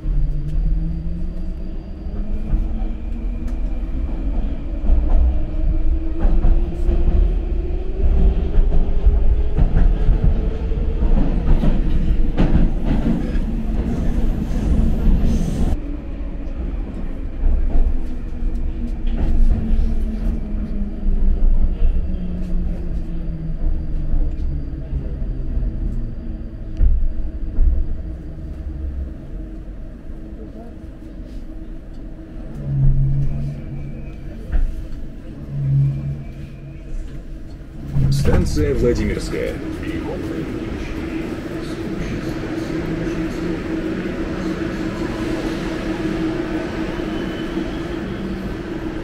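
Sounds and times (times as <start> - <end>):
train wheels rumbling and clattering: 0.0 - 49.0.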